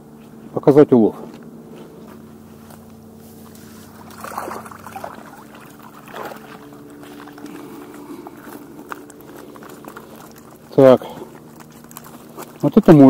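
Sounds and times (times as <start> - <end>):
low motor hum: 0.0 - 13.0
water splashing from net: 3.8 - 8.1.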